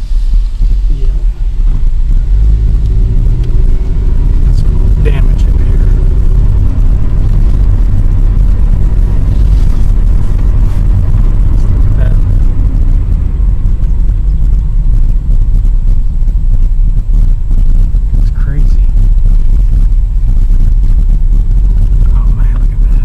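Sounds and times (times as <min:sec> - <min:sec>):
car cabin road and engine rumble: 0:00.0 - 0:23.0.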